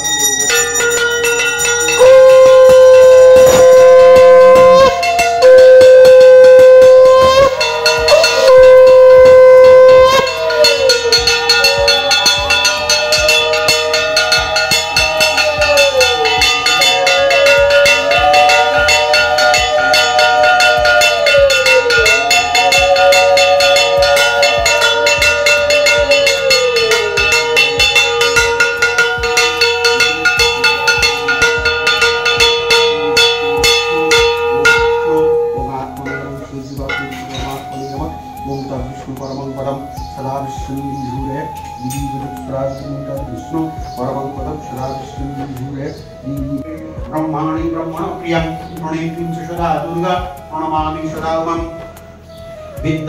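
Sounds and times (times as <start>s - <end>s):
hand bell ringing rapidly: 0.0s - 37.7s
conch shell blown: 0.0s - 53.0s
wavering rising and falling note: 0.0s - 53.0s.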